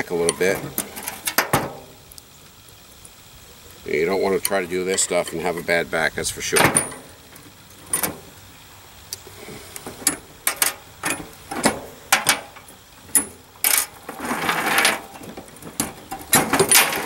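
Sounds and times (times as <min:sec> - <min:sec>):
scraping rustle: 0:00.4 - 0:01.9, 0:09.3 - 0:17.0.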